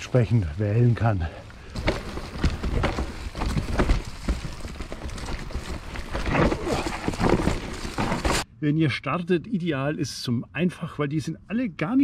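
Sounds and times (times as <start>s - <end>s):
bike rattling over rough ground: 0.0s - 8.5s.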